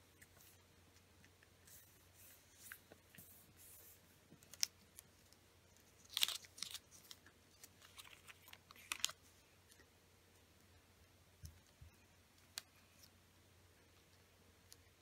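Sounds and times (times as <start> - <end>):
paper crinkling as folded: 1.7 - 9.3.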